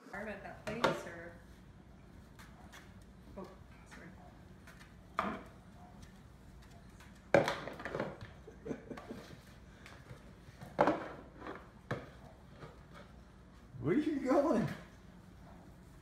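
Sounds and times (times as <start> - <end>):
plastic bucket knocking on floor: 7.3 - 8.4.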